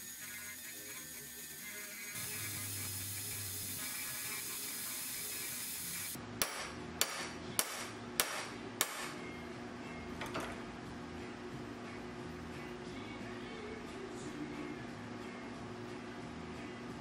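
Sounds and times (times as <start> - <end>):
rotary tool grinding: 0.0 - 6.2.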